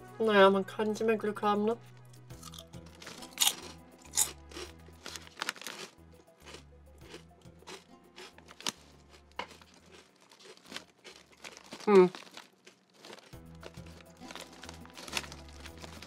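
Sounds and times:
quiet background music: 0.0 - 16.0
person chewing crunchy chips: 2.3 - 16.0.

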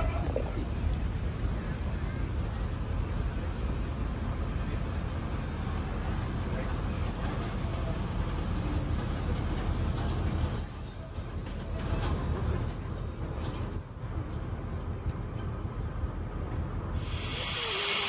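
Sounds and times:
train carriages rumbling: 0.0 - 18.0
wheel squeals: 3.7 - 14.4.

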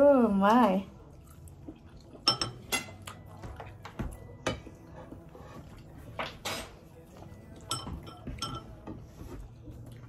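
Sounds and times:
cutlery clinking on plate: 2.2 - 4.9, 7.6 - 9.1
cutlery scraping plate: 4.5 - 6.9.

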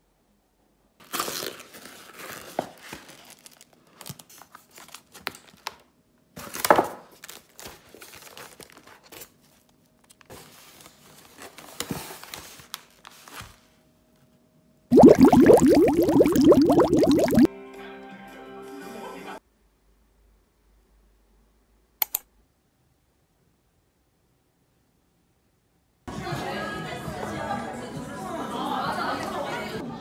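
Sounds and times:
packaging crinkling and tearing: 1.0 - 5.1, 7.2 - 9.0.

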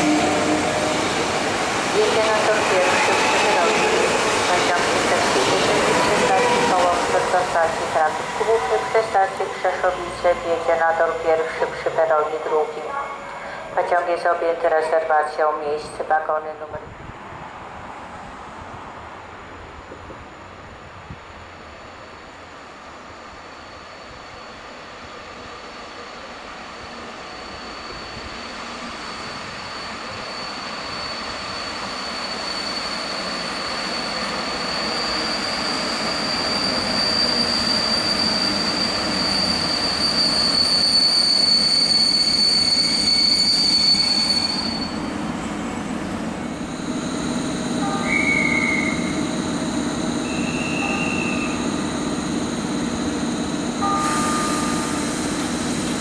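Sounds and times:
locomotive humming: 0.0 - 16.8, 21.4 - 56.0
train pulling in: 0.0 - 56.0
high brake squeal: 23.3 - 45.3, 46.6 - 56.0.

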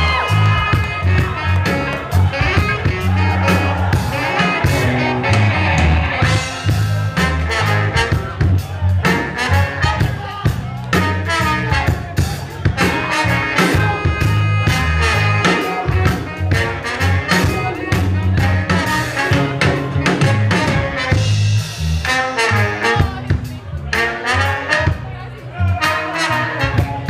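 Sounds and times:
live band with horns: 0.0 - 27.0
steady drum beat: 0.0 - 27.0
held horn notes: 0.3 - 8.6, 12.8 - 23.2.

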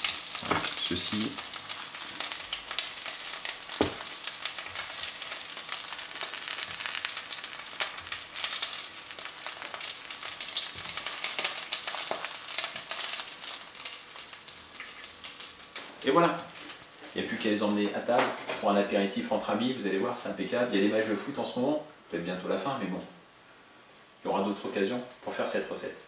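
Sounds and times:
food sizzling in oil: 0.0 - 17.9
knock: 3.8 - 4.0.

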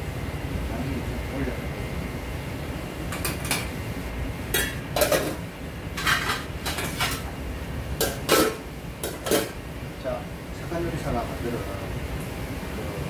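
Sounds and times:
steady low hum: 0.0 - 13.0
metal kitchenware clattering: 4.6 - 5.4, 6.0 - 7.3, 8.0 - 9.6.

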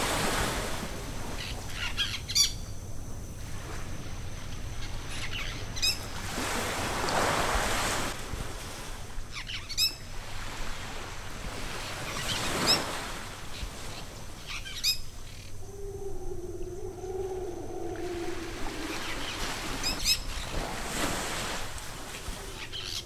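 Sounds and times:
slow rushing swells: 15.6 - 20.0.

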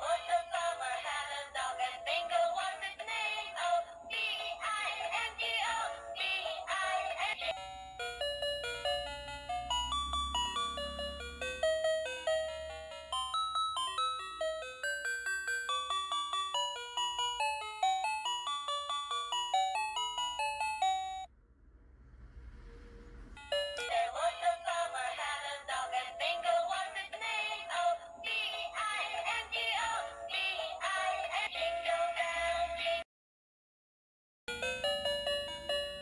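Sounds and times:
synthetic singing voice: 0.0 - 7.5, 23.9 - 33.0
chime-like beeping melody: 7.4 - 21.3, 23.4 - 25.0, 34.5 - 36.0
faint noise: 21.3 - 25.2.

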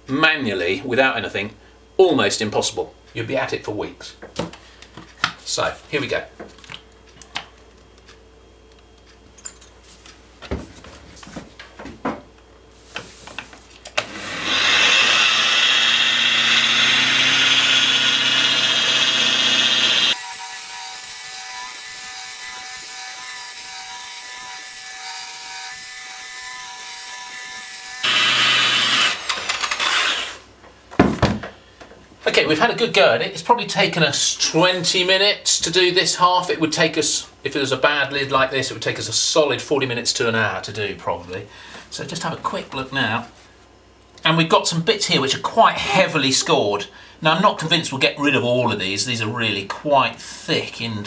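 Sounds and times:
rotary polisher whirring: 14.0 - 20.2, 28.0 - 30.4.

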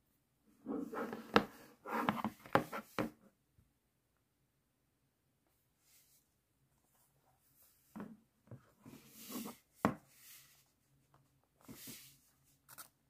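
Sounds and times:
plastic sliding and scraping: 0.6 - 3.2, 8.8 - 10.6, 11.6 - 12.2.

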